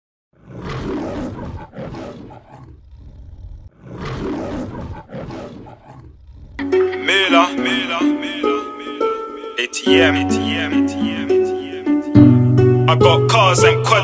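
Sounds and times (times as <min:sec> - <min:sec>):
lion roaring: 0:00.4 - 0:06.6
plucked string music: 0:06.6 - 0:14.0.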